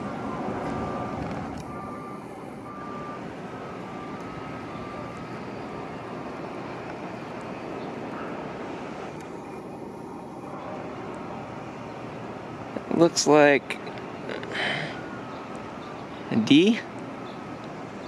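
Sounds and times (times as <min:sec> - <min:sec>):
construction machinery: 0:00.0 - 0:18.0
distant traffic: 0:00.0 - 0:18.0
faint high beeping: 0:00.2 - 0:08.0.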